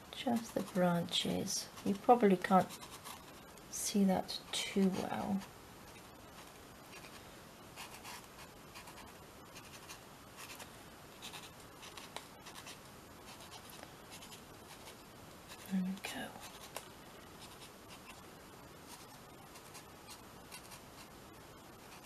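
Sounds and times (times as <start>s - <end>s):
marker scratching on paper: 11.2s - 15.7s.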